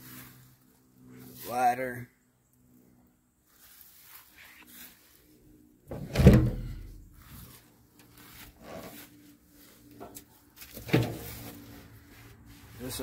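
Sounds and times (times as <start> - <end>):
metal compartment door clunk: 5.9 - 7.0.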